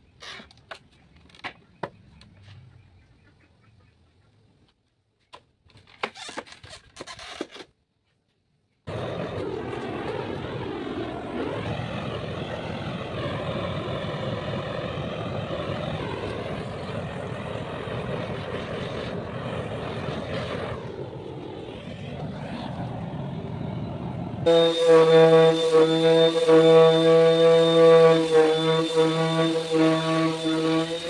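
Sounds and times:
rushing hiss of air tool: 0:24.5 - 0:31.0.

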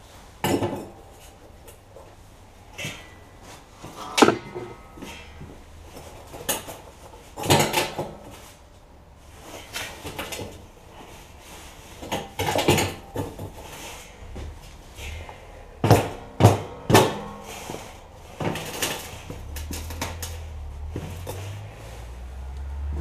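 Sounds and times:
bricks knocking against metal barrel: 0:04.0 - 0:04.8.

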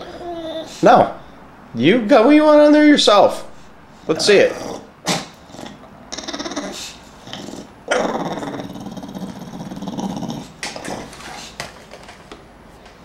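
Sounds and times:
dog growling: 0:00.0 - 0:01.2, 0:04.1 - 0:11.6
dog grunting: 0:00.0 - 0:01.2, 0:04.0 - 0:11.6.

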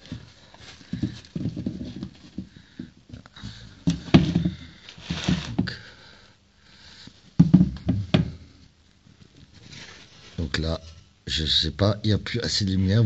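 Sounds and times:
knocks and scuffs under car: 0:03.5 - 0:05.8.

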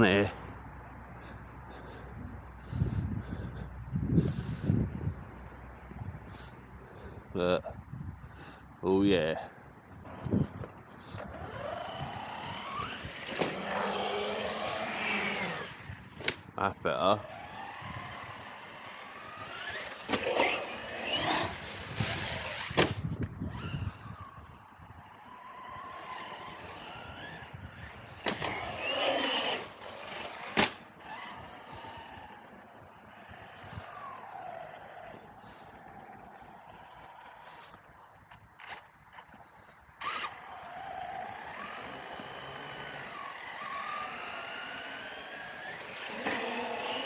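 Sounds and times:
electric motor whining: 0:11.0 - 0:16.4, 0:17.2 - 0:37.8, 0:40.0 - 0:47.0
toy truck hitting concrete: 0:19.6 - 0:23.0, 0:28.2 - 0:30.8.

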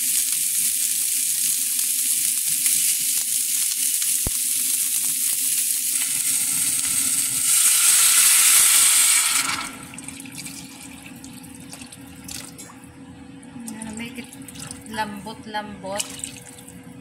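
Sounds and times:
meat sizzling in a pan: 0:00.0 - 0:09.9
water pouring into a pot: 0:00.0 - 0:12.7.

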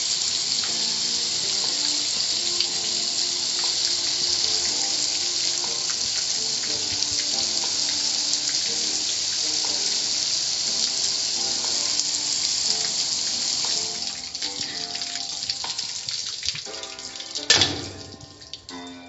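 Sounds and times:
water spray hissing on car: 0:00.0 - 0:17.4
faint music: 0:00.0 - 0:19.0.

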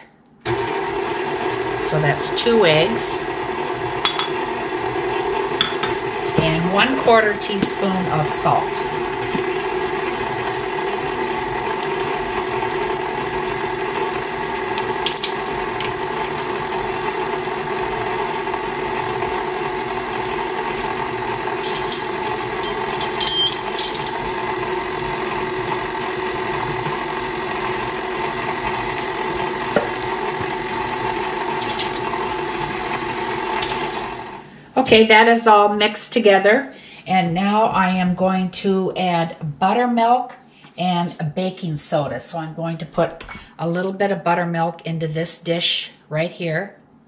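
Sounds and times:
stand mixer running: 0:00.4 - 0:34.6.

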